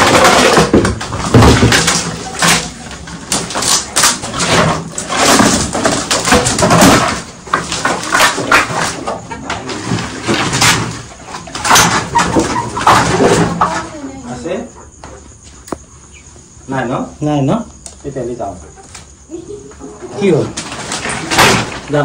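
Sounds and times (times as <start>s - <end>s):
bamboo slats clattering: 0.0s - 14.1s, 19.8s - 22.0s.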